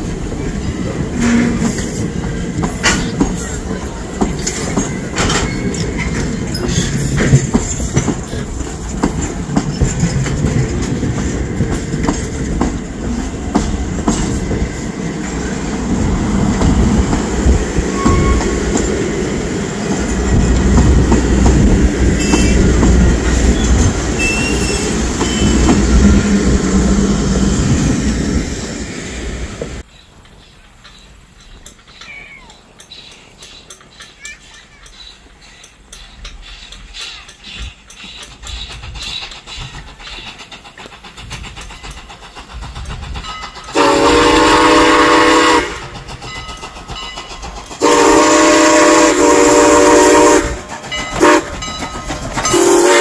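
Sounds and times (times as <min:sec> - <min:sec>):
train coaches rumbling past: 0:00.0 - 0:53.0
wheels clacking over rail joints: 0:00.0 - 0:53.0
wheel squeals: 0:00.4 - 0:10.8, 0:17.8 - 0:19.0, 0:22.1 - 0:26.3.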